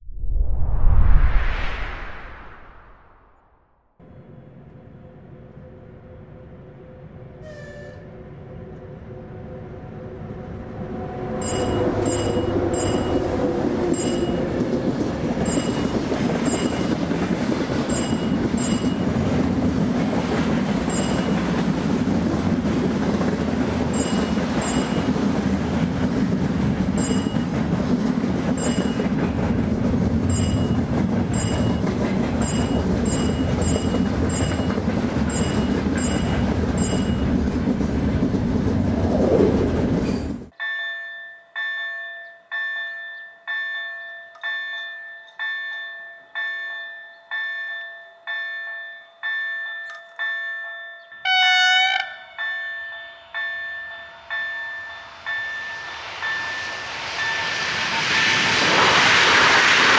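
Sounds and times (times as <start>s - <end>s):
train wheels rumbling on rail: 10.2s - 40.6s, 52.4s - 59.9s.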